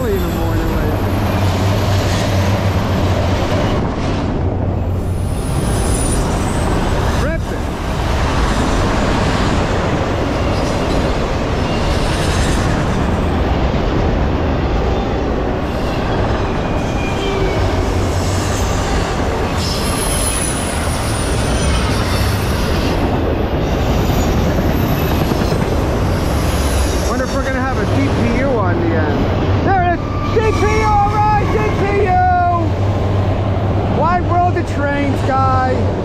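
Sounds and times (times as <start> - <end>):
high wheel squeals: 0.0 - 2.4, 5.1 - 6.8, 15.6 - 25.4, 29.7 - 32.3
freight train wheels rumbling: 0.0 - 36.0.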